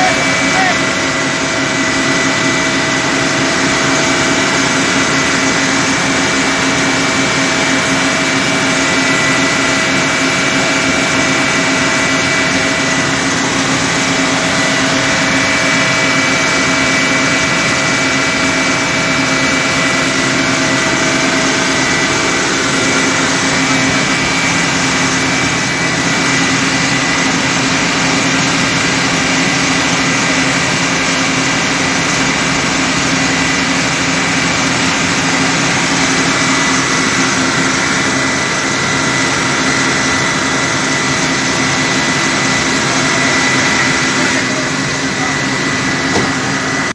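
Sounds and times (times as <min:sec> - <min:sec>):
fire truck engine running: 0:00.0 - 0:46.9.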